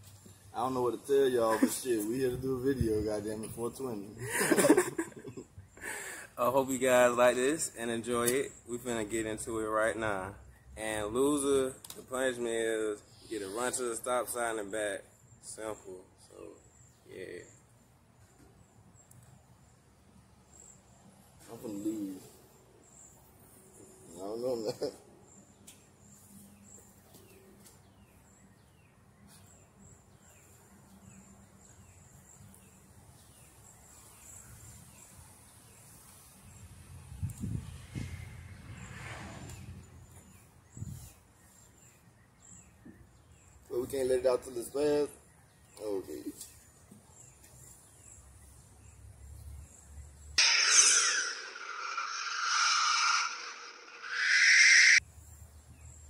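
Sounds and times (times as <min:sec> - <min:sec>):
bird chirping: 0:39.5 - 0:56.0
cartoon suction whoosh: 0:50.4 - 0:55.0
high insect trill: 0:50.4 - 0:55.0.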